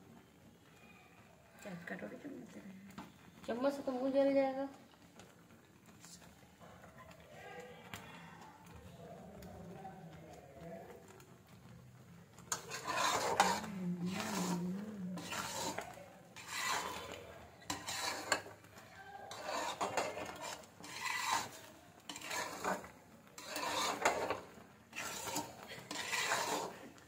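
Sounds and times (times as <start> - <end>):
spoon scraping cooking pan: 10.6 - 27.0.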